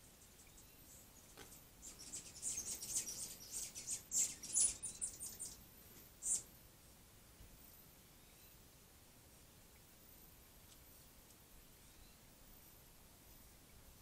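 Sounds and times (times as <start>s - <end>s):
small bird chirping: 0.0s - 6.5s.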